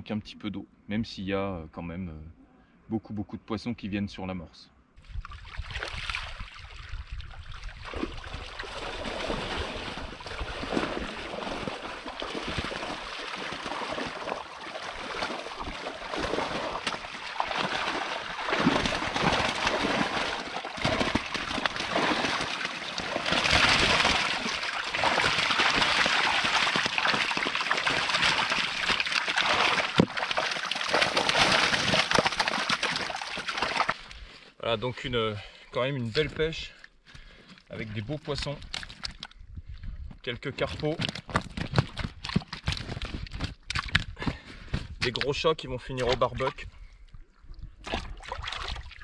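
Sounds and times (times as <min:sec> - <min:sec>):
water sloshing and splashing: 0:05.0 - 0:34.3, 0:37.5 - 0:40.0, 0:41.0 - 0:44.1, 0:46.0 - 0:49.0
water pouring and dripping: 0:05.1 - 0:34.1.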